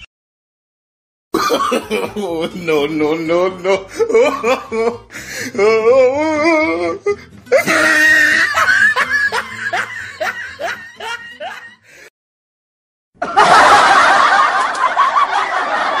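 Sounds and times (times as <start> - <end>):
laughter: 1.4 - 2.8, 3.6 - 5.0, 7.5 - 11.8, 13.2 - 16.0.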